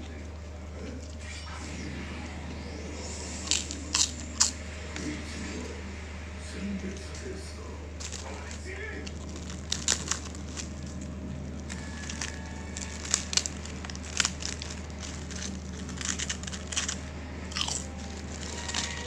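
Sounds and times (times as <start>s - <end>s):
steady low hum: 0.0s - 19.0s
cracker crunching: 2.9s - 5.8s, 6.8s - 19.0s
plastic bag crinkling: 3.4s - 5.1s, 8.0s - 19.0s.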